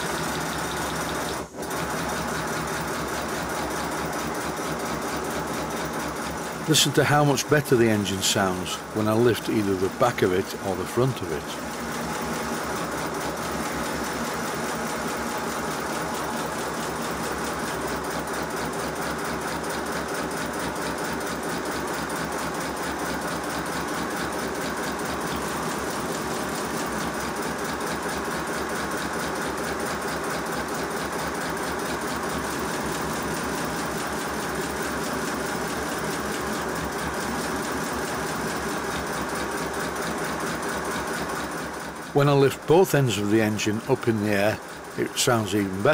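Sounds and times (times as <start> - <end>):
wheels spinning on rollers: 0.0 - 4.1.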